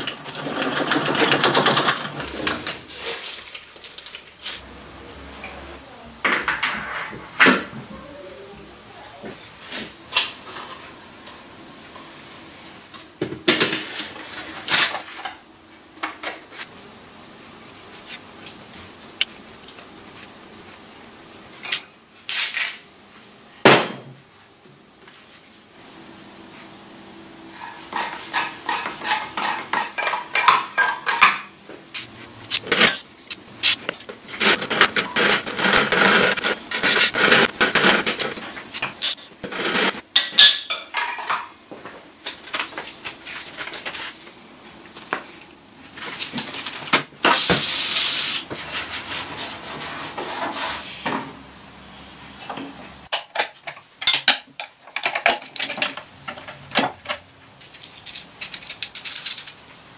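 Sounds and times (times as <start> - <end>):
metal rubbing and scraping: 32.2 - 40.0
metal parts clinking: 57.6 - 59.6.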